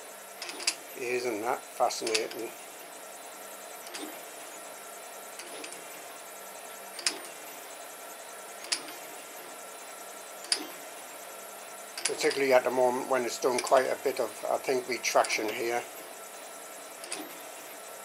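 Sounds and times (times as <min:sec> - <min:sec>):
printer motor hum: 0:00.0 - 0:18.0
sharp extruder clicks: 0:07.0 - 0:07.3, 0:17.0 - 0:17.4.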